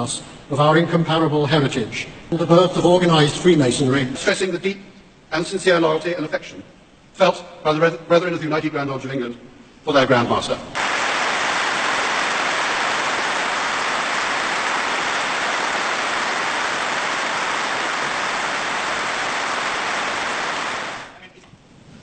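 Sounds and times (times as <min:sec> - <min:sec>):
large audience applauding: 0:10.8 - 0:21.2.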